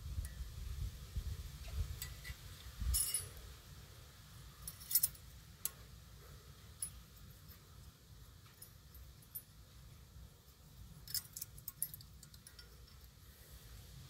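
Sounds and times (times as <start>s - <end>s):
metallic clicks and clinks: 2.0s - 3.4s, 4.6s - 5.8s, 6.8s - 7.6s, 10.9s - 13.2s.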